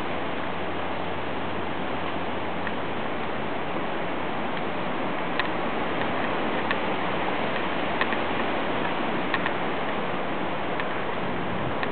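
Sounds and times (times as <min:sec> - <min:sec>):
hurricane wind: 0:00.0 - 0:11.9
rain: 0:00.0 - 0:11.9
sharp ticks: 0:08.8 - 0:09.6.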